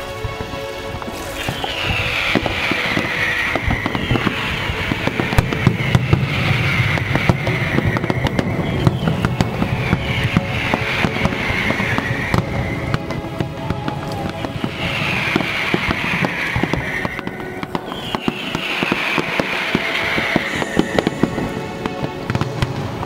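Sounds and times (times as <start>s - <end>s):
fireworks cracks and bangs: 0.0s - 23.0s.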